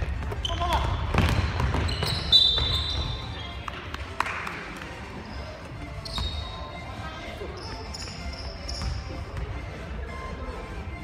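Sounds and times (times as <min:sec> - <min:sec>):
basketball bouncing: 0:00.0 - 0:03.2
sneaker squeak: 0:00.3 - 0:03.5, 0:05.2 - 0:09.6.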